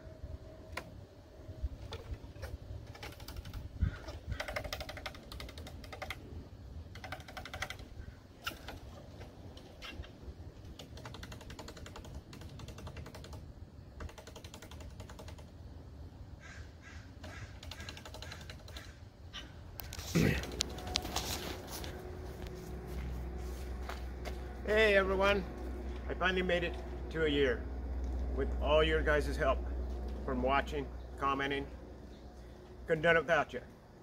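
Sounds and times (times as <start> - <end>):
squirrel chattering: 3.0 - 6.2, 16.4 - 19.0.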